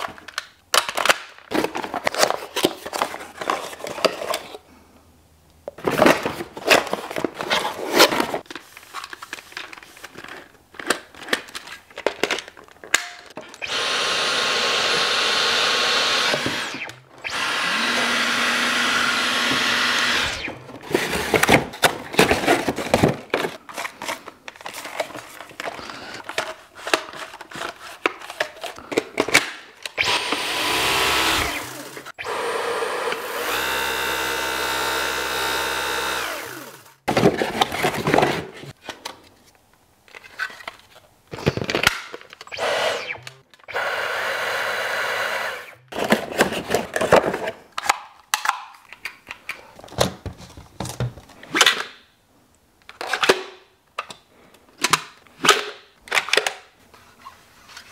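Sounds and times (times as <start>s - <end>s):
cardboard packaging rustling: 0.0s - 4.6s, 5.8s - 12.9s, 20.5s - 29.4s, 37.0s - 42.4s
vacuum cleaner motor whining: 13.6s - 20.6s, 30.0s - 37.0s, 42.5s - 45.8s.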